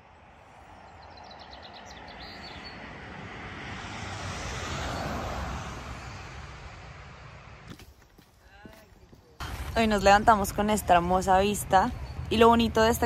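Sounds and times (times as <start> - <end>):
vehicle passing by: 0.0 - 7.7.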